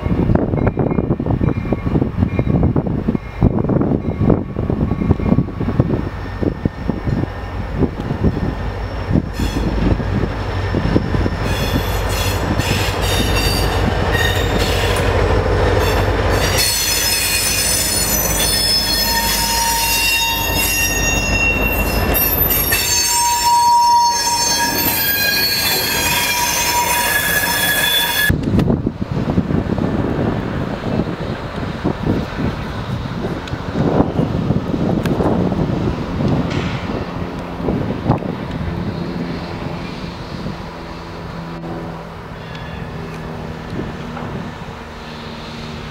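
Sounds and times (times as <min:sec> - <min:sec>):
wind on microphone: 0:00.0 - 0:16.6, 0:28.3 - 0:45.9
train wheels squealing on rails: 0:00.0 - 0:28.4, 0:38.7 - 0:41.6, 0:42.2 - 0:45.9
diesel locomotive engine rumbling: 0:00.0 - 0:45.9.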